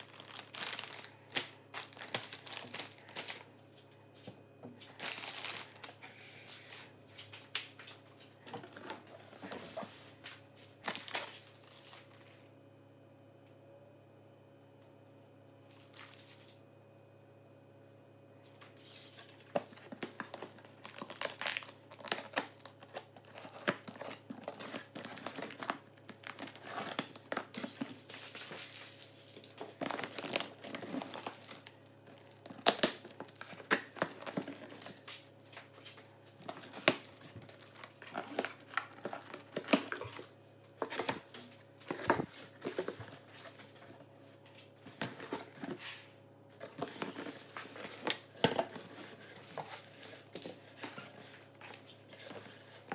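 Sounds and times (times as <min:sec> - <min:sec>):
cardboard rustling: 0:00.0 - 0:01.1, 0:18.8 - 0:45.9, 0:46.6 - 0:52.9
crinkling of contents: 0:00.0 - 0:12.6, 0:15.6 - 0:16.6, 0:18.5 - 0:45.8, 0:46.5 - 0:52.9
packing tape ripping: 0:19.8 - 0:31.7.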